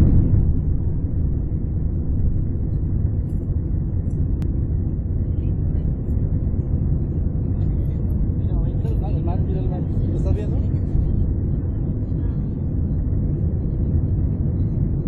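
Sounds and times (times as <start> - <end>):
rushing air: 0.0 - 5.3
airplane engines rumbling: 0.0 - 15.0.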